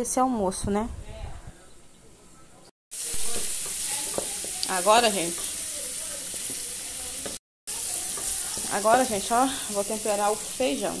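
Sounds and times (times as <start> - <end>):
onion sizzling in oil: 2.9 - 11.0
wooden spoon stirring: 3.3 - 11.0.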